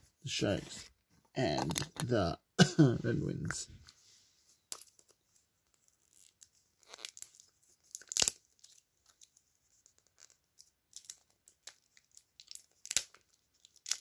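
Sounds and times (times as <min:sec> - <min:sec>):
plastic wrapper tearing and crinkling: 0:01.6 - 0:02.1, 0:05.8 - 0:14.0.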